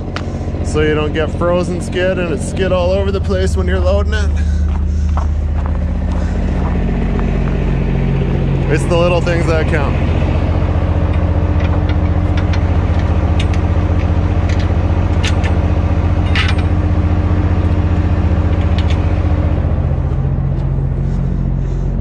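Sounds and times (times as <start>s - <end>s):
diesel truck engine idling: 0.0s - 22.0s
footsteps on packed snow: 3.8s - 8.7s.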